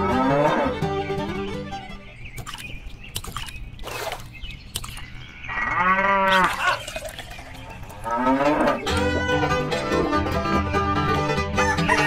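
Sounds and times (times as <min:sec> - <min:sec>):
cow mooing: 0:00.0 - 0:00.8, 0:05.5 - 0:06.8, 0:08.0 - 0:08.8.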